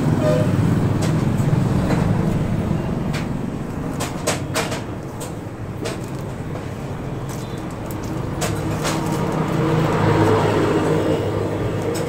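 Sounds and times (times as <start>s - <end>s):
sharp clicks and knocks: 3.0s - 10.5s.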